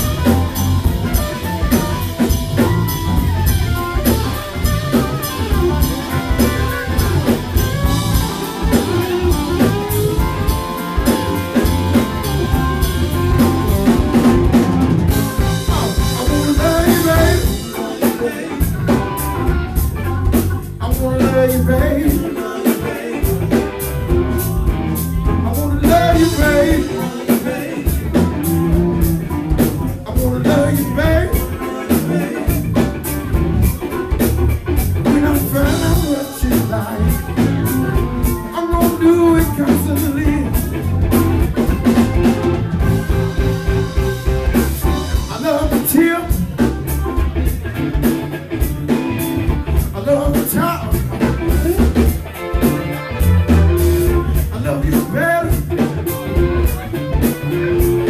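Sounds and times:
drum kit: 0:00.0 - 0:58.0
electric guitar: 0:00.0 - 0:58.0
man singing: 0:14.5 - 0:19.8, 0:20.6 - 0:34.2, 0:34.8 - 0:40.9, 0:44.8 - 0:47.0, 0:49.7 - 0:52.6, 0:54.0 - 0:57.4.

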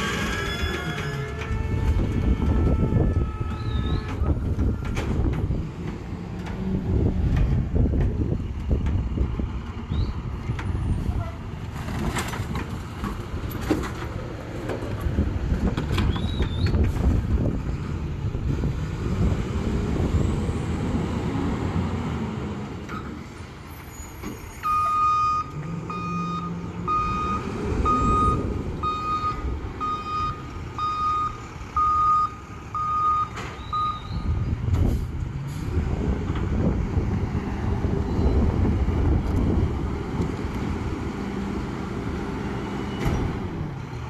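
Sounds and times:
truck reversing alarm beeps: 0:24.6 - 0:34.4.

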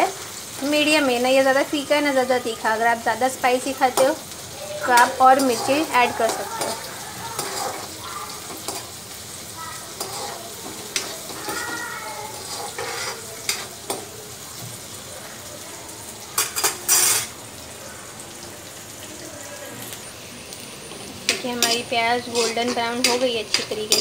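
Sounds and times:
onions sizzling in hot oil: 0:00.0 - 0:24.0
spatula scraping pan: 0:03.7 - 0:14.1, 0:16.4 - 0:17.4, 0:21.2 - 0:24.0.

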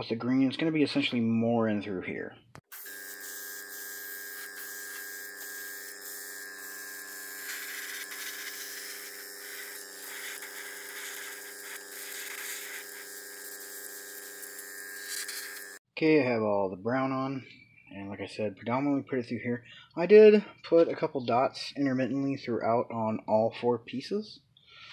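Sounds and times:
airbrush hissing: 0:02.6 - 0:15.8
compressor humming: 0:02.7 - 0:15.8.

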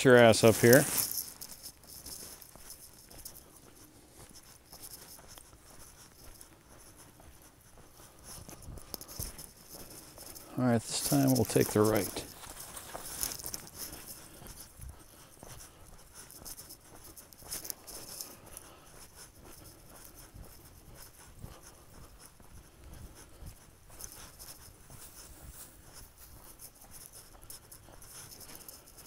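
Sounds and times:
leaves rustling: 0:00.0 - 0:04.3, 0:08.4 - 0:14.6
footsteps on dirt and leaves: 0:00.0 - 0:29.0.

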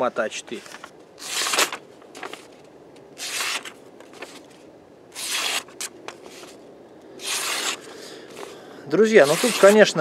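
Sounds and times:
blade slicing paper: 0:01.2 - 0:01.8, 0:03.2 - 0:04.4, 0:05.2 - 0:06.6, 0:07.2 - 0:08.5, 0:09.2 - 0:10.0.

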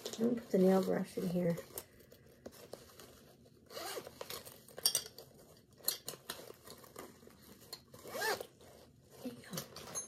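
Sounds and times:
fabric bag rustling: 0:00.0 - 0:10.0
nail tools clinking: 0:04.7 - 0:06.8.

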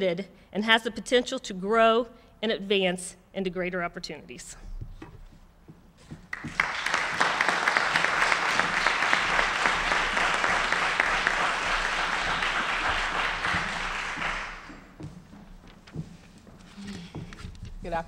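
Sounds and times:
audience applauding: 0:06.3 - 0:14.9.

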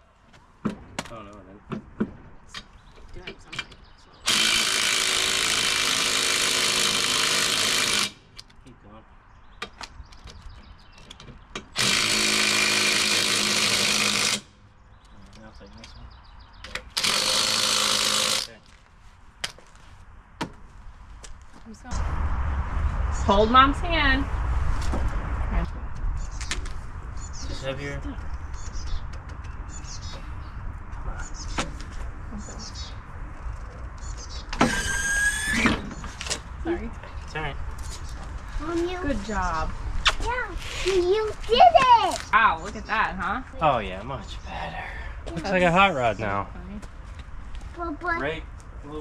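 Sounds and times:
impact wrench running: 0:04.3 - 0:08.2, 0:11.8 - 0:14.5, 0:17.0 - 0:18.5
sharp click: 0:40.0 - 0:40.3.

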